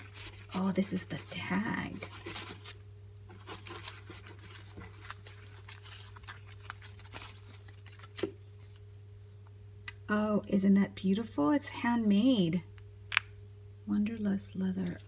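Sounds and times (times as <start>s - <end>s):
low electrical hum: 0.0s - 15.0s
packaging rustling and clicking: 2.0s - 8.8s.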